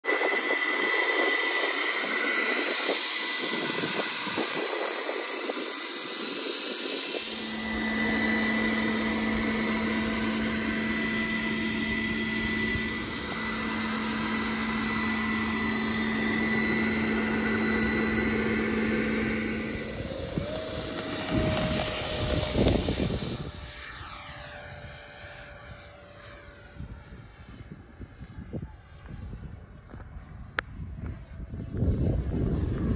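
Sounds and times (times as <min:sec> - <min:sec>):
electric ducted fan whining: 0:00.1 - 0:32.9
jet taking off rush: 0:00.2 - 0:24.2.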